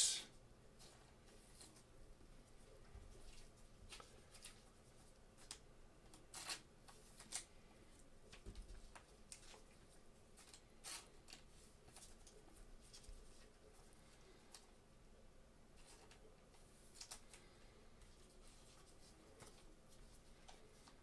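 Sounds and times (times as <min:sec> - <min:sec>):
trading cards rustling and clicking: 0:16.9 - 0:21.0.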